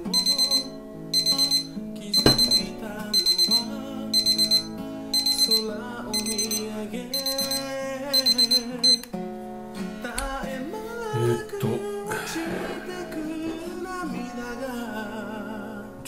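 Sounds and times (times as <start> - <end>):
kitchen timer beeping: 0.1 - 9.1.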